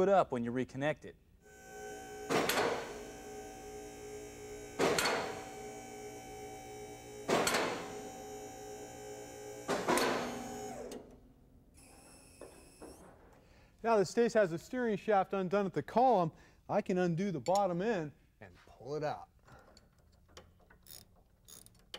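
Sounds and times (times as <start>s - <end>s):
hydraulic pump motor humming: 1.5s - 11.2s.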